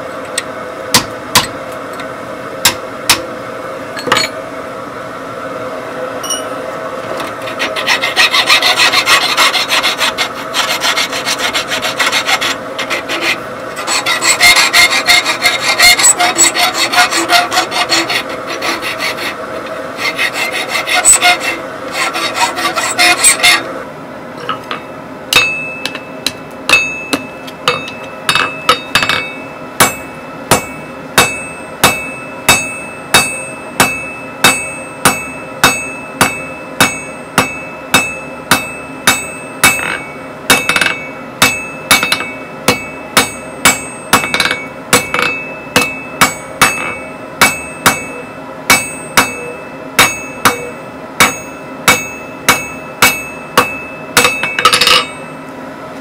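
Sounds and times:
hammer striking bar on anvil: 0:00.9 - 0:01.6, 0:02.6 - 0:03.3, 0:24.5 - 0:55.3
anvil ringing: 0:06.2 - 0:06.6, 0:24.7 - 0:55.4
file rasping on steel bar: 0:07.4 - 0:23.7.

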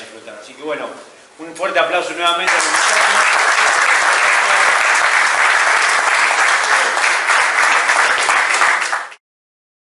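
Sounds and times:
audience clapping: 0:02.4 - 0:09.2.

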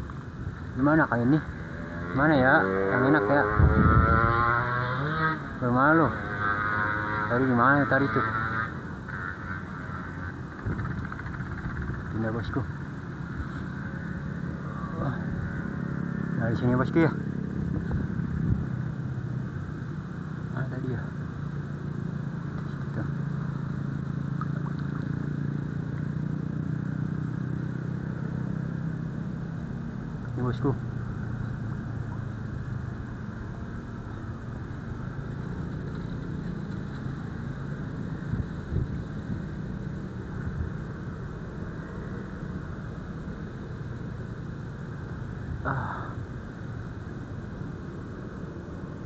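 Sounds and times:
background rush: 0:00.0 - 0:49.0
low engine hum: 0:00.0 - 0:49.0
steady low rumble: 0:09.0 - 0:49.0.

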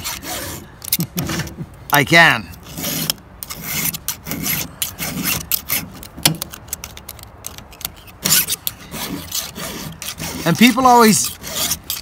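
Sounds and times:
file rasping on chainsaw chain: 0:00.0 - 0:01.5, 0:02.4 - 0:12.0.

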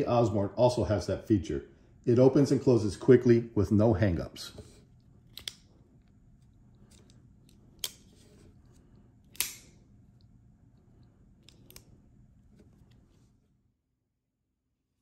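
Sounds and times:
folding knife metallic clicks: 0:09.3 - 0:09.8.

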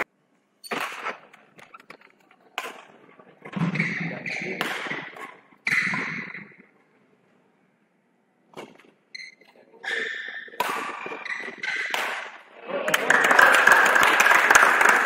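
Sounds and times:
racket hitting shuttlecock: 0:00.7 - 0:01.3, 0:02.6 - 0:02.9, 0:03.5 - 0:06.4, 0:09.9 - 0:12.4.

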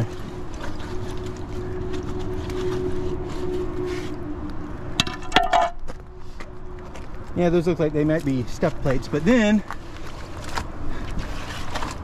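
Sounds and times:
steady droning hum: 0:00.0 - 0:11.8
steel plate clanking on concrete: 0:05.0 - 0:05.8.

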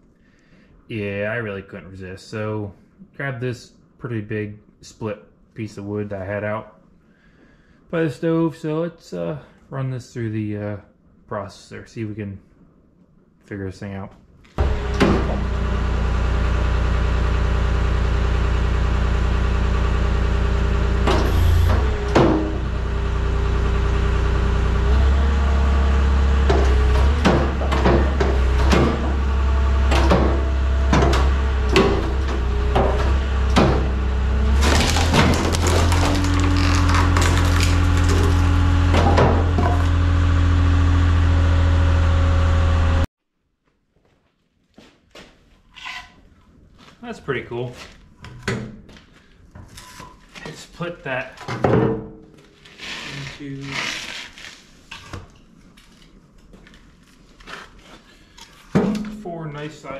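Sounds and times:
skid steer engine running: 0:14.6 - 0:43.1
log knocking and cracking splitting: 0:34.6 - 0:39.9.

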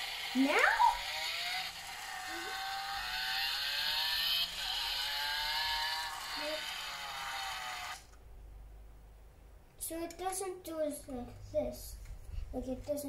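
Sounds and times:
toy car electronic engine revving: 0:00.0 - 0:08.2.

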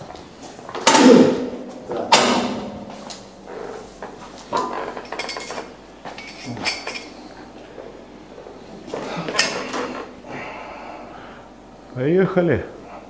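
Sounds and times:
weight machine metal clanks: 0:00.8 - 0:03.0, 0:04.5 - 0:07.2.

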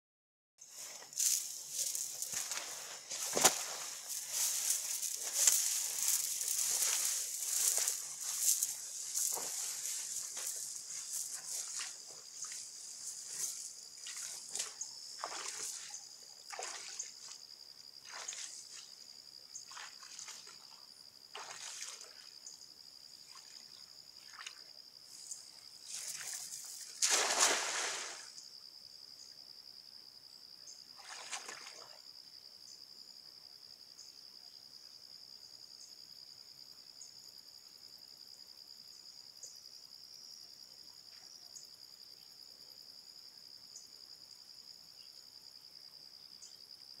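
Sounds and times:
high insect drone: 0:00.6 - 0:47.0
cast net splashing onto water: 0:01.2 - 0:12.6, 0:13.3 - 0:15.9, 0:16.5 - 0:17.1, 0:21.3 - 0:22.2, 0:25.9 - 0:28.4, 0:31.0 - 0:31.9
net rustling: 0:01.2 - 0:13.7.

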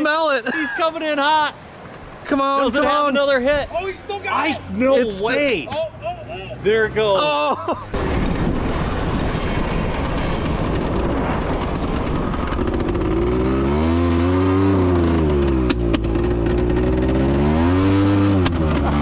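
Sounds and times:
atv engine at full throttle: 0:10.0 - 0:19.0.

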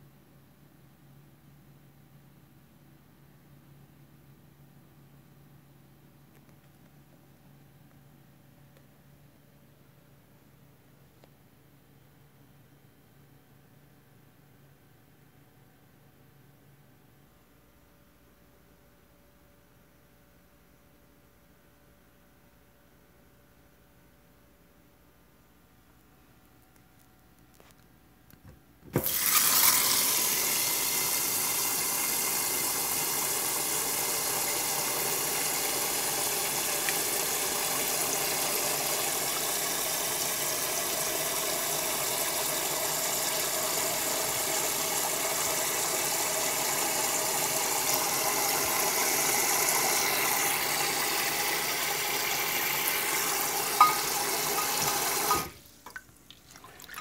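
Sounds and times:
tap water running into pot: 0:28.9 - 0:57.0.

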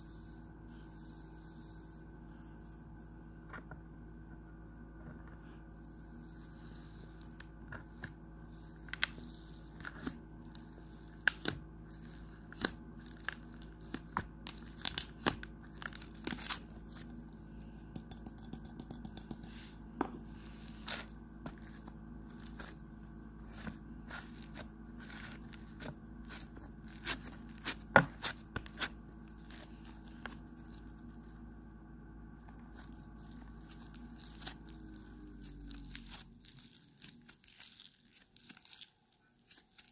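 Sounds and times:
steady low hum: 0:00.0 - 0:39.9
slime crackling and popping: 0:08.7 - 0:16.6, 0:32.7 - 0:39.9.

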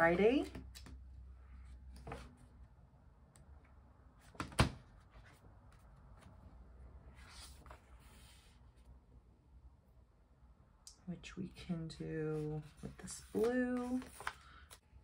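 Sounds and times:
pages rustling: 0:12.3 - 0:14.8
handling paper book: 0:12.3 - 0:15.0.

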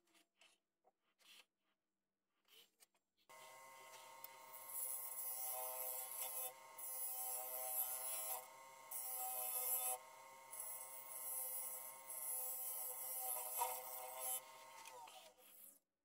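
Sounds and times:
turning tool scraping wood: 0:02.4 - 0:15.7
lathe motor whine: 0:03.3 - 0:15.3.

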